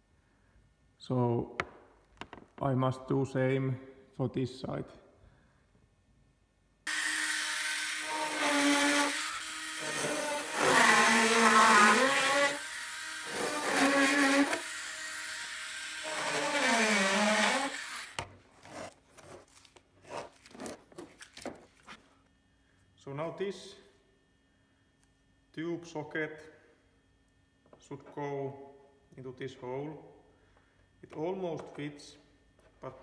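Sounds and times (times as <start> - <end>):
rotary tool whining: 6.9 - 18.9.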